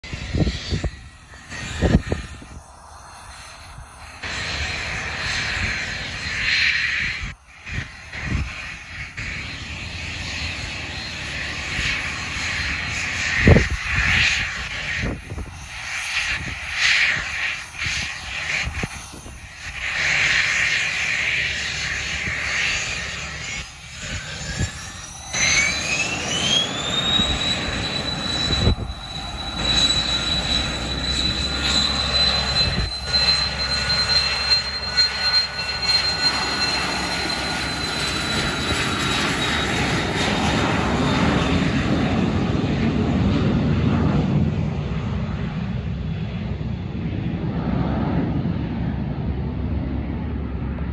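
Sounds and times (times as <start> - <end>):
jet engines whining: 0.0 - 50.9
low rumble: 22.0 - 50.9.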